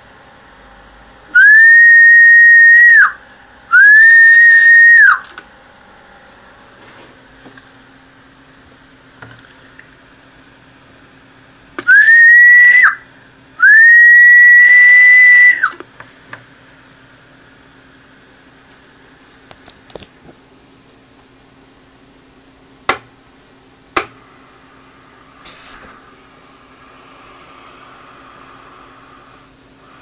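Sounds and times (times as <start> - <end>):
loud high whistled notes: 1.3 - 5.2, 11.8 - 13.0, 13.6 - 15.8.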